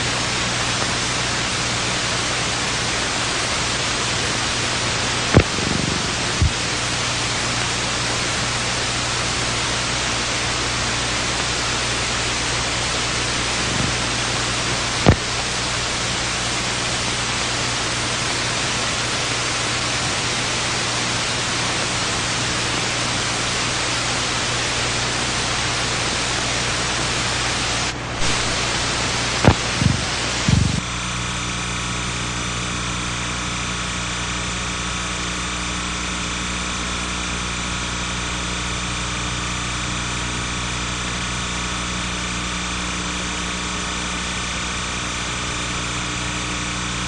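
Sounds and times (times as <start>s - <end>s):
steady hiss: 0.0s - 31.6s
low mains hum: 0.0s - 47.0s
sharp clicks: 5.3s - 6.6s.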